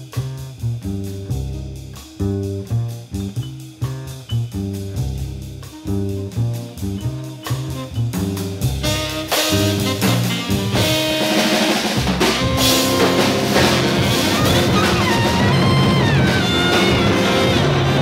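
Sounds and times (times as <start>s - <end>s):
drum kit with cymbals: 0.0s - 18.0s
walking double bass: 0.0s - 18.0s
tenor saxophone line: 5.6s - 18.0s.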